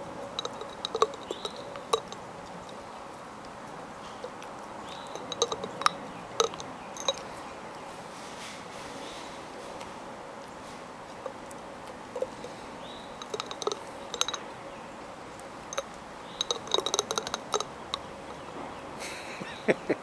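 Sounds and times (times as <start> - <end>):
teeth tapping against glass: 0.0 - 3.1, 4.1 - 7.3, 12.1 - 14.7, 15.6 - 18.6
dog licking glass jar: 0.0 - 7.8, 9.8 - 18.6.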